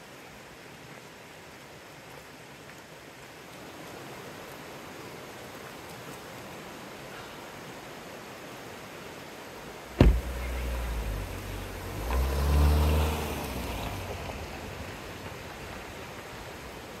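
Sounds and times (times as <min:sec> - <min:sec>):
car door shutting: 0:10.0 - 0:13.3
car engine starting and running: 0:10.0 - 0:16.1.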